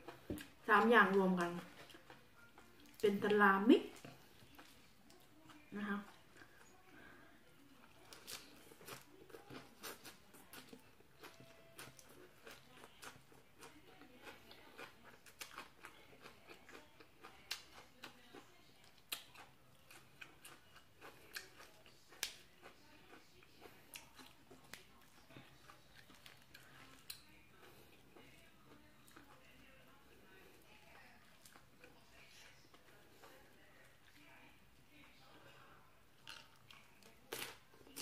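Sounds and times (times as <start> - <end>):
person chewing crunchy food: 1.2 - 3.0, 3.9 - 6.9, 7.8 - 29.6, 36.2 - 38.0.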